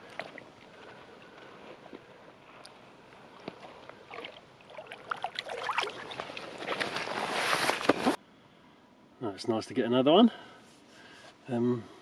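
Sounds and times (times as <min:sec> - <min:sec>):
water splashing and sloshing: 0:00.0 - 0:08.1.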